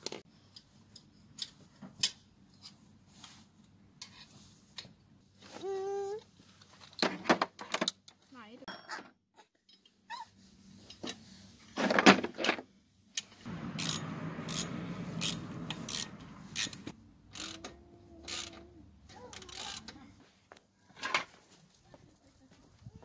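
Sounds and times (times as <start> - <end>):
ratchet wrench clicking: 13.7 - 18.6, 19.3 - 19.8.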